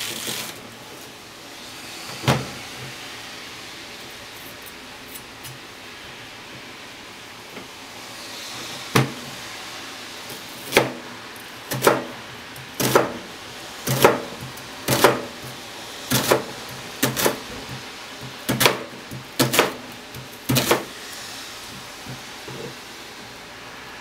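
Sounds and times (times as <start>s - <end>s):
knife chopping onion on board: 10.6s - 11.0s, 11.7s - 20.9s.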